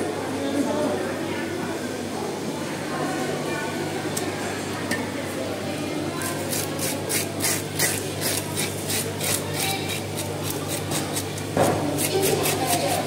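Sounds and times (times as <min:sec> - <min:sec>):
metal scaler scraping fish: 0:06.2 - 0:13.0.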